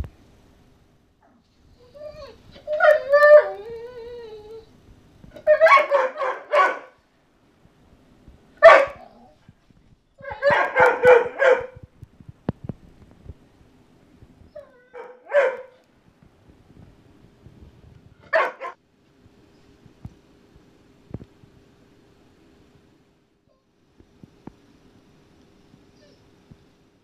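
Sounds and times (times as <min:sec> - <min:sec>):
dog whining: 0:01.2 - 0:04.7, 0:05.3 - 0:06.8, 0:14.5 - 0:15.6
dog barking sharply: 0:05.5 - 0:07.0, 0:08.6 - 0:09.1, 0:10.3 - 0:11.8, 0:15.0 - 0:15.8, 0:18.3 - 0:18.8.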